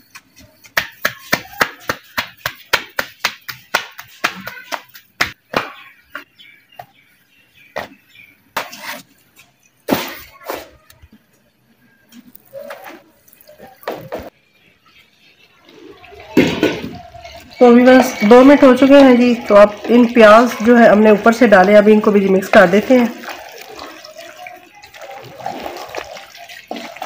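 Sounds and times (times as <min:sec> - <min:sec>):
dough slapped between palms: 0:00.7 - 0:05.8.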